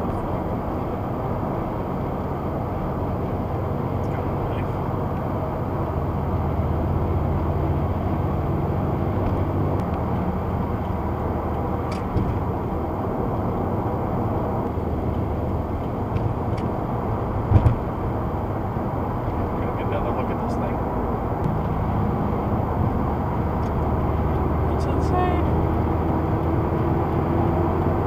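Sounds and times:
car engine and tyre noise: 0.0 - 28.0
low thump: 12.0 - 12.4, 17.5 - 17.9.

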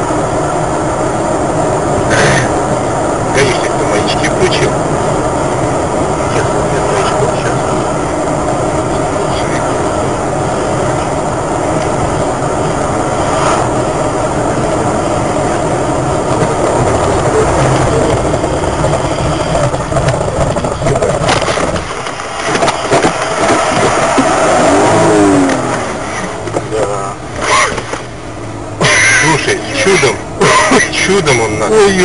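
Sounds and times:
car road and engine noise: 0.0 - 32.0
sharp clatters and knocks: 17.6 - 24.6.

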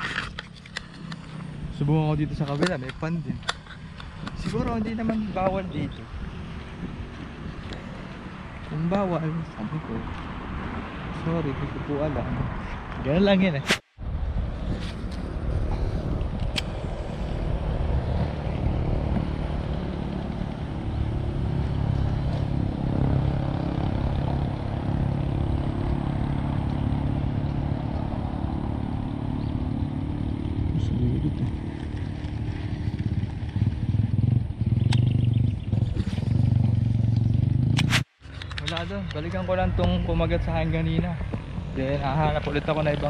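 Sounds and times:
engine running: 14.0 - 43.0
sharp clicks: 37.2 - 39.2.

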